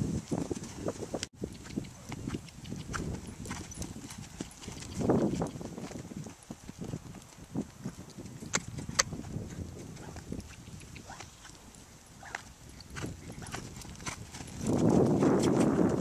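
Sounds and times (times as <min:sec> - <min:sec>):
horse hoofbeats on dirt: 0:00.0 - 0:16.0.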